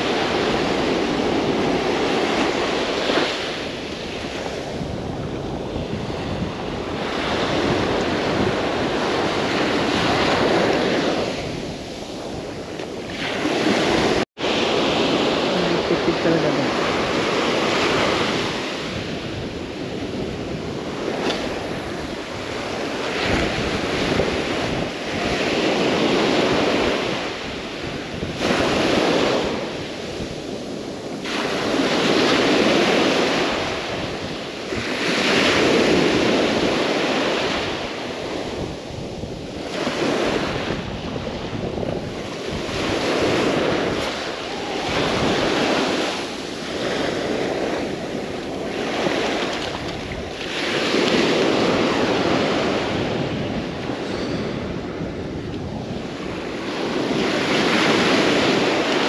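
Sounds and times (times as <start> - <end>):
ocean surf breaking on beach: 0.0 - 59.0
wind on microphone: 0.0 - 59.0.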